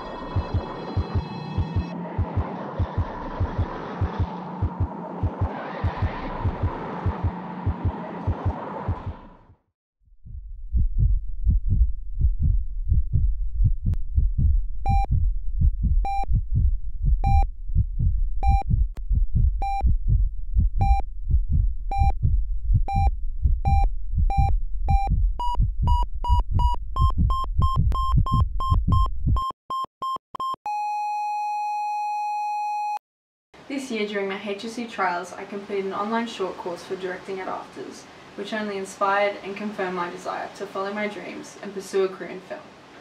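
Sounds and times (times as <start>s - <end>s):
flatline tone: 0.0s - 8.5s
heartbeat pulsing: 0.0s - 9.5s, 10.2s - 29.6s
heart monitor beeps: 0.2s - 8.4s, 14.4s - 18.8s, 19.4s - 21.1s, 21.9s - 33.0s.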